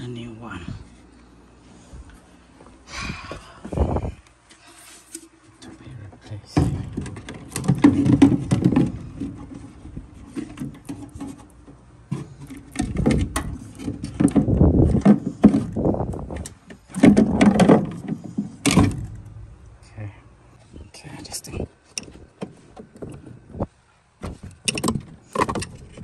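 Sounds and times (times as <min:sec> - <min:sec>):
handling knocks and scrapes: 0:03.7 - 0:19.4.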